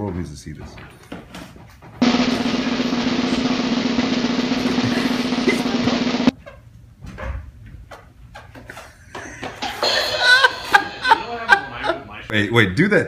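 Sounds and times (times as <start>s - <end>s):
drum roll: 2.0s - 6.4s.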